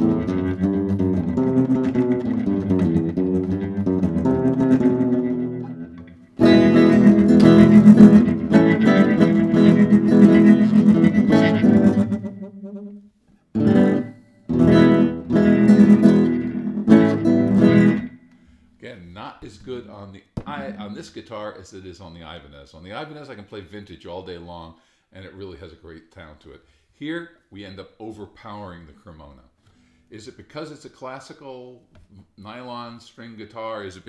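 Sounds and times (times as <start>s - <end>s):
nylon-string guitar chords: 0.0s - 18.4s, 20.4s - 21.0s.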